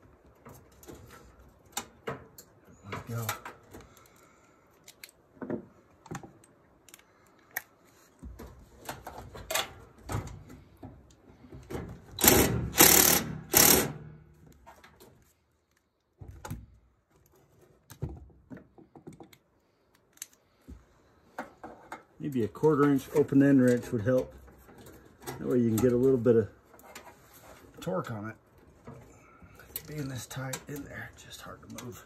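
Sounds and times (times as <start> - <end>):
cordless driver bursts: 12.2 - 14.0.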